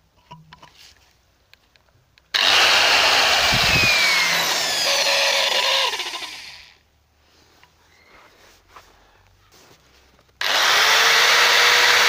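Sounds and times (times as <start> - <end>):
angle grinder whining: 2.4 - 6.8, 10.4 - 12.0.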